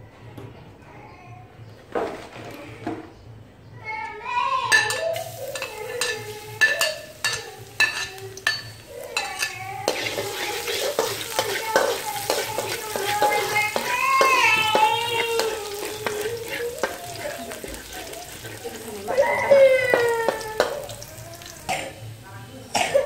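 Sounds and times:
metal ladle scraping wok: 4.7s - 21.6s
garlic sizzling in oil: 4.7s - 22.7s.

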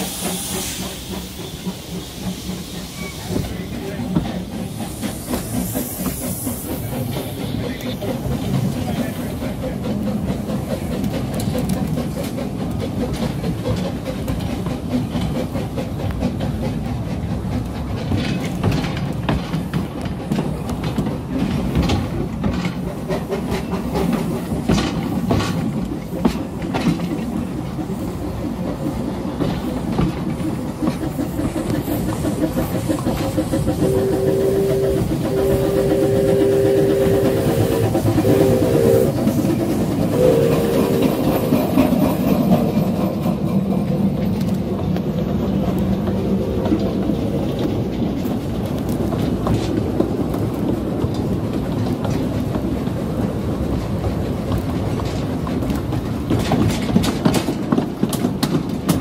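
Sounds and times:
steam hissing: 0.0s - 59.0s
train wheels rumbling on rails: 0.0s - 59.0s
clicks over rail joints: 54.0s - 59.0s.

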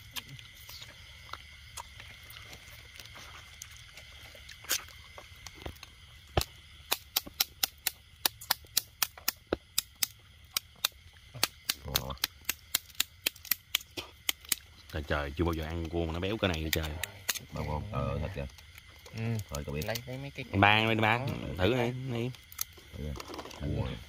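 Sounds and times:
loud sharp clicks: 6.4s - 14.6s.

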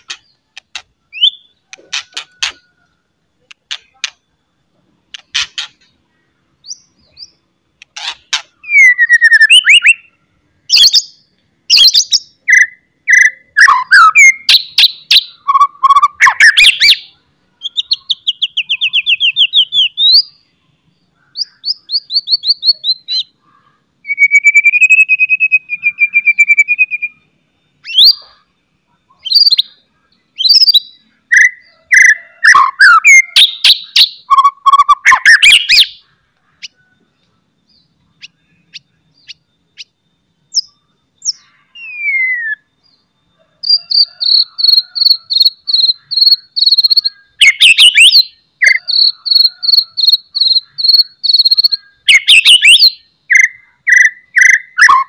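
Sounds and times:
bird singing whistled phrases: 1.1s - 2.7s, 8.6s - 20.4s, 21.3s - 23.3s, 24.0s - 28.4s, 30.4s - 36.0s, 37.7s - 43.0s, 43.7s - 55.0s.

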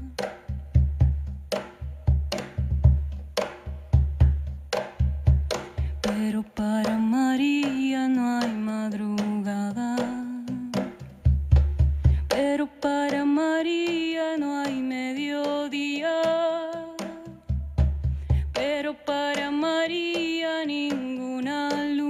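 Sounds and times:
woman singing: 0.0s - 0.3s, 5.9s - 11.1s, 12.2s - 17.6s, 18.3s - 22.0s.

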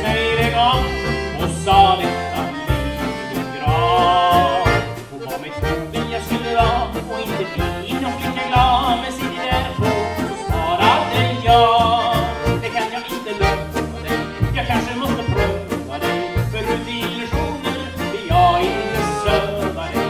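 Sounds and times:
accordions playing melody: 0.0s - 20.0s
upright bass: 0.0s - 20.0s
drums: 7.6s - 12.8s.

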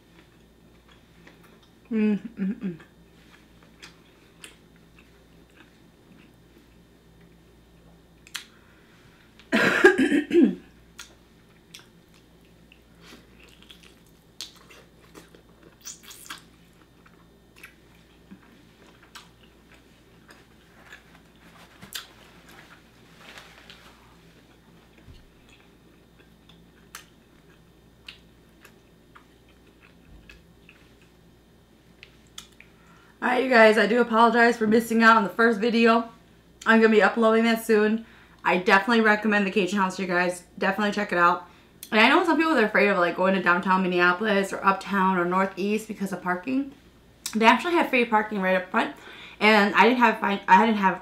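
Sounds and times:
chewing and lip smacks: 3.3s - 8.5s, 10.9s - 22.2s, 24.5s - 31.2s, 32.0s - 32.8s
cough-like throat sound: 9.6s - 10.7s.

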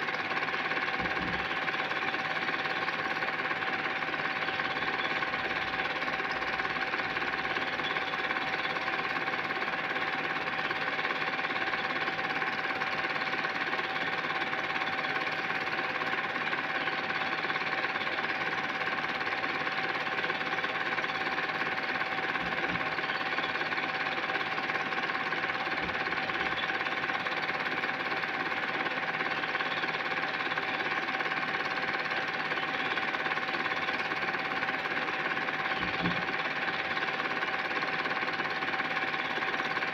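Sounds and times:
film projector whirring: 0.0s - 39.9s.

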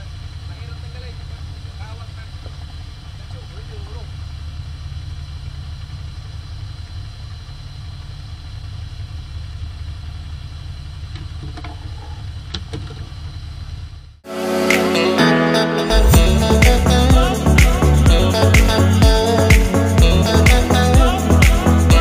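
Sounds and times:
boat engine humming: 0.0s - 22.0s
loud intro music: 14.2s - 22.0s.

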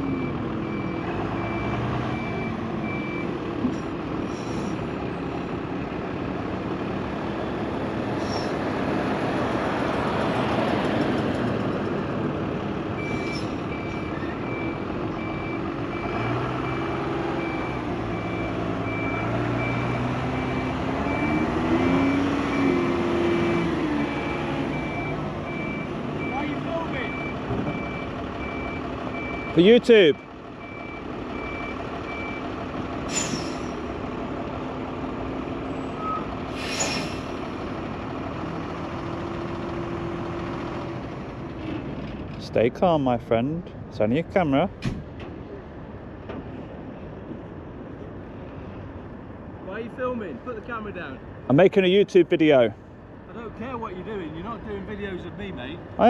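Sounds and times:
diesel engine running: 0.0s - 42.4s.

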